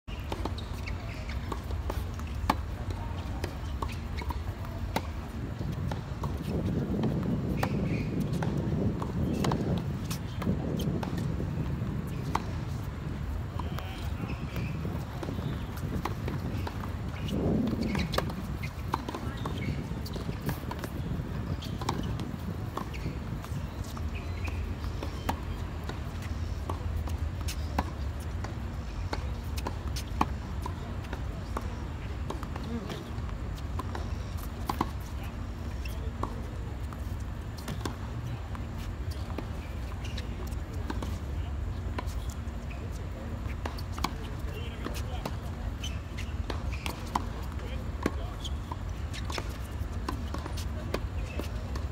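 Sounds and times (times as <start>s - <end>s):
balls bouncing on hard court: 0.2s - 51.8s
tennis balls struck by rackets: 0.2s - 51.8s.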